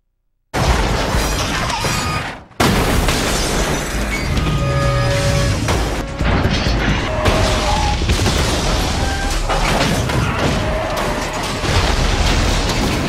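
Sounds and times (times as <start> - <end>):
car crashing and exploding: 2.6 - 13.0.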